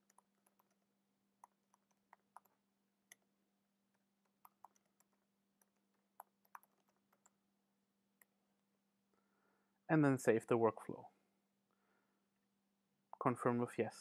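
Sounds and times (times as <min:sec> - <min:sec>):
keyboard typing: 0:00.0 - 0:07.4.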